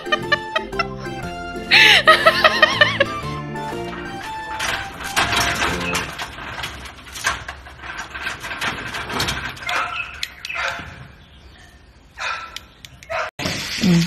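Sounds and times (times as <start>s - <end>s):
metal gate rattling: 2.1s - 11.2s.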